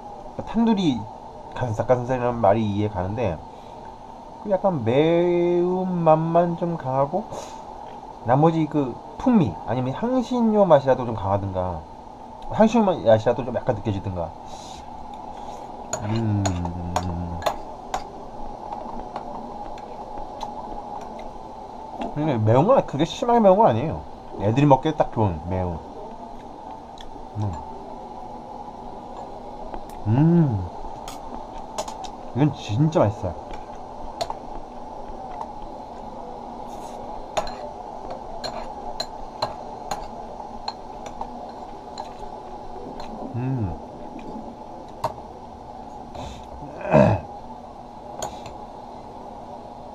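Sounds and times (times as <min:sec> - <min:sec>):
low background hum: 0:00.0 - 0:49.9
man humming low: 0:16.0 - 0:17.6, 0:27.3 - 0:27.7, 0:29.9 - 0:30.8, 0:43.2 - 0:43.9, 0:46.6 - 0:47.3.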